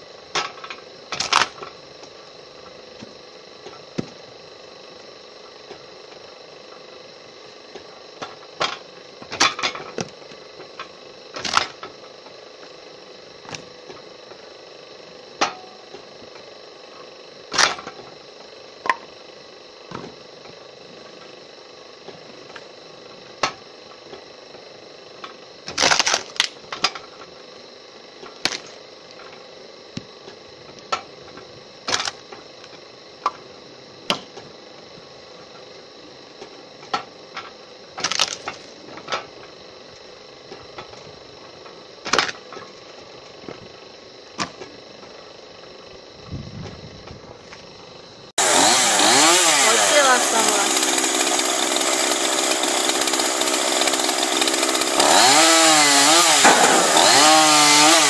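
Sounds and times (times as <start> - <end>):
saw-splitter machine humming: 37.0 - 58.0.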